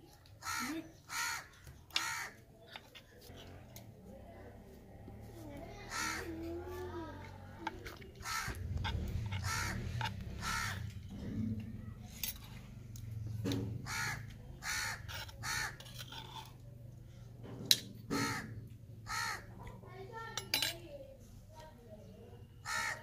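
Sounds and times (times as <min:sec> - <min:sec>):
crows cawing: 0:00.4 - 0:02.4, 0:05.8 - 0:06.4, 0:08.2 - 0:11.0, 0:13.8 - 0:15.9, 0:18.1 - 0:19.6, 0:22.6 - 0:23.0.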